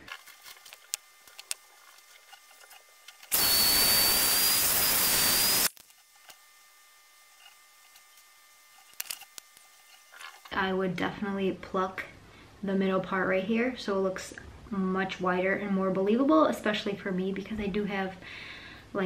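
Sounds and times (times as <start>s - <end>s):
hair dryer blowing: 3.3s - 5.7s.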